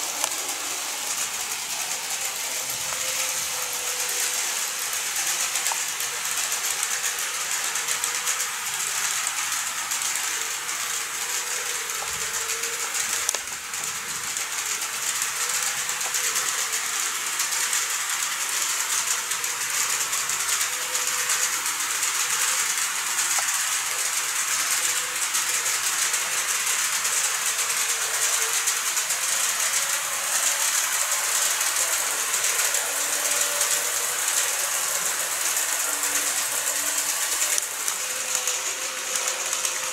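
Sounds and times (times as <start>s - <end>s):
faint motor whine: 0.0s - 39.9s
model train rattling on track: 0.0s - 39.9s.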